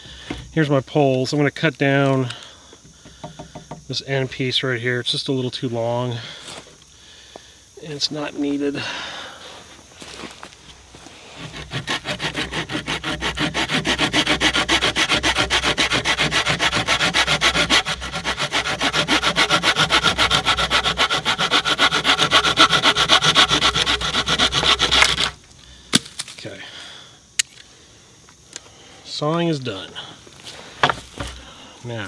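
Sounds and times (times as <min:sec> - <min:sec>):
saw cutting wood: 0:11.2 - 0:25.4.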